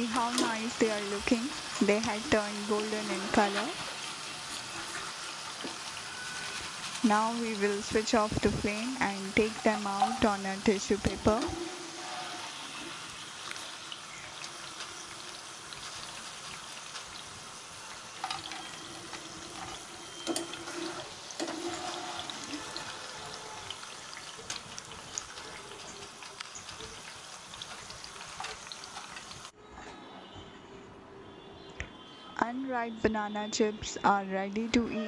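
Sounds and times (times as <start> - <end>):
banana slices sizzling in oil: 0.0 - 29.6
metal skimmer clinking on pan: 9.5 - 10.3.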